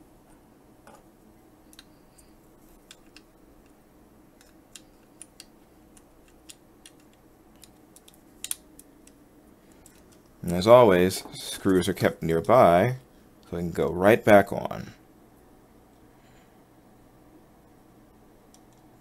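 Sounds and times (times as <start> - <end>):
faint steady hum: 0.0 - 19.0
plastic parts clicking: 4.4 - 9.2.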